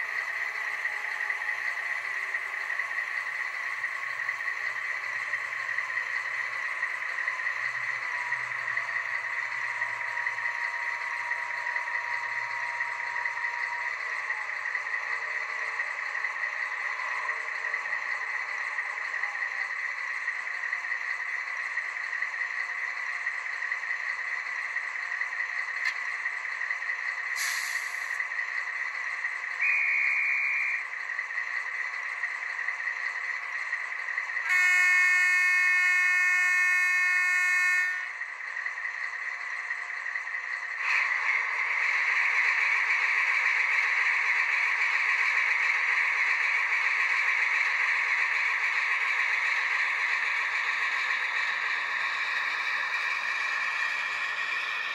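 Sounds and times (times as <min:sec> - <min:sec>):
model train diesel idle sound: 0:00.0 - 0:54.9
brief hiss: 0:27.4 - 0:28.1
train horn blast: 0:34.5 - 0:38.1.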